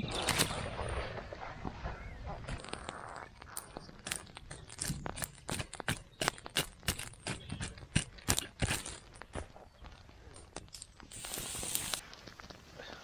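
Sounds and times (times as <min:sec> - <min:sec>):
campfire crackling and popping: 0:11.0 - 0:13.0.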